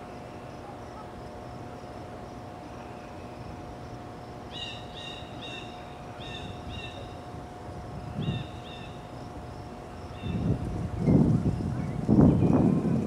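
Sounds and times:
osprey whistled calls: 4.5s - 7.2s, 8.2s - 9.0s.

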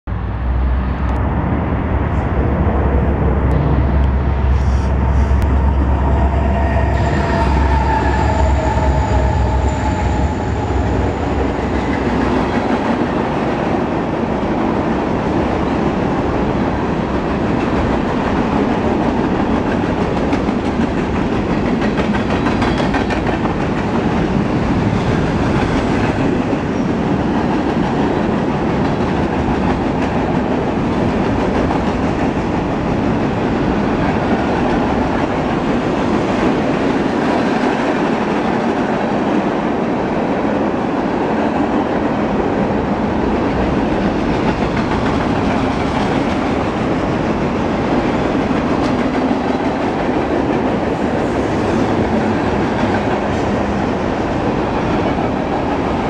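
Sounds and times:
freight train rumbling past: 0.0s - 56.0s
rail cars clattering: 0.1s - 56.0s
thin high tones: 4.4s - 11.8s.

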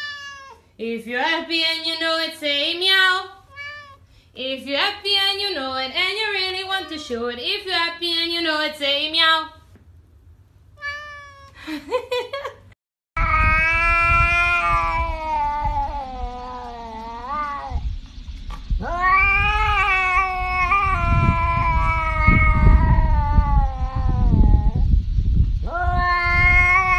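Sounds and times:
cat yowling: 0.0s - 0.7s, 3.5s - 4.0s, 6.4s - 7.2s, 10.8s - 11.6s, 13.2s - 17.8s, 18.8s - 24.8s, 25.7s - 26.9s
low rumbling noise: 13.2s - 26.9s.

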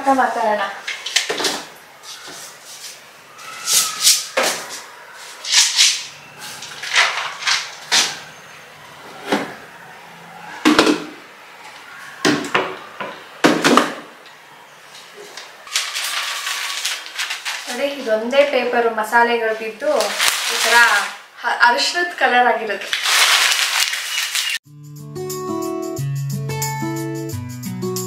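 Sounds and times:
paper rustling: 0.8s - 8.3s, 15.0s - 18.6s, 19.4s - 21.2s, 22.8s - 24.6s.

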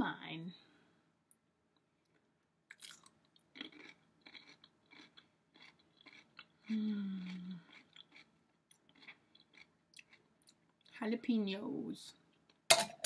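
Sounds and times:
chewing crunchy pickle: 2.7s - 10.6s
person humming mmm: 6.7s - 7.7s.

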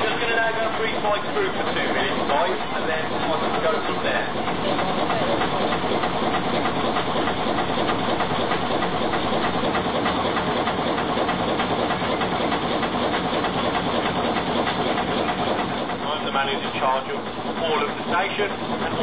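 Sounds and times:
diesel engine clattering: 0.0s - 19.0s.

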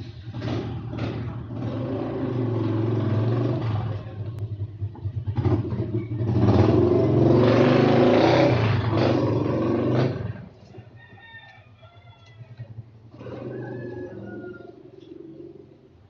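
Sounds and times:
motorcycle engine running: 0.0s - 10.5s.

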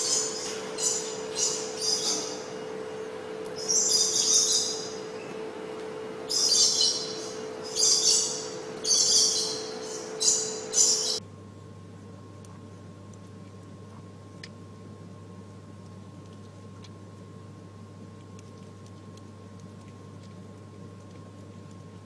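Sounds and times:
high-pitched chirping calls: 0.0s - 2.5s, 3.6s - 5.3s, 6.3s - 11.2s
steady low hum: 0.0s - 22.0s.

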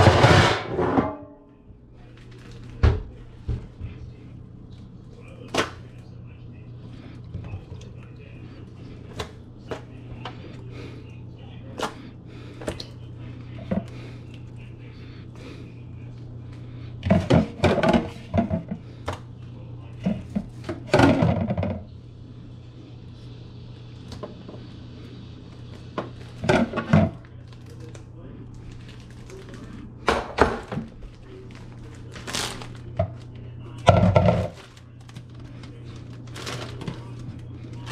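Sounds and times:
steady low hum: 0.0s - 37.9s.

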